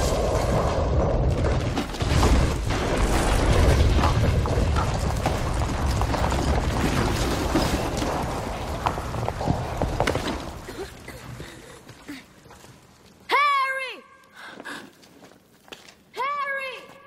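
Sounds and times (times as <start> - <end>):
stones clattering: 0.0 - 12.7
rock collapsing rumble: 0.0 - 13.0.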